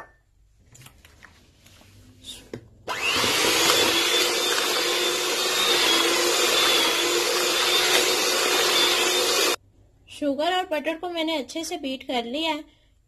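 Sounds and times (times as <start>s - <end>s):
electric hand mixer whining: 2.9s - 9.6s.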